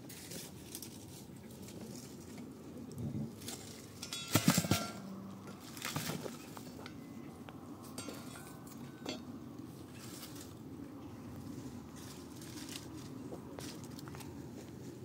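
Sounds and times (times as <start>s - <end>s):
hard objects clinking and clattering: 3.9s - 5.1s.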